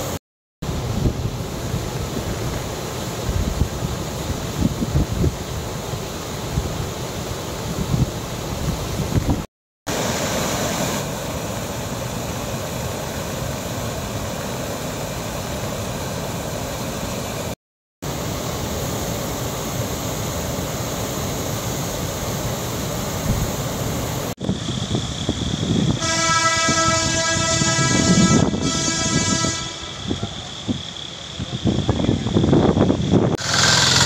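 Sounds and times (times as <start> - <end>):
water rushing over weir: 0.0 - 24.4.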